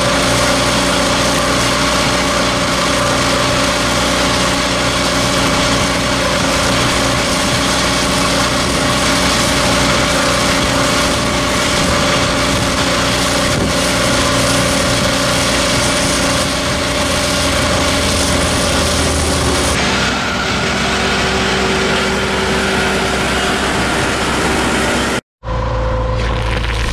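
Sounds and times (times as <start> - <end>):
slurry spraying from hose: 0.0 - 19.9
truck engine running: 0.0 - 26.9.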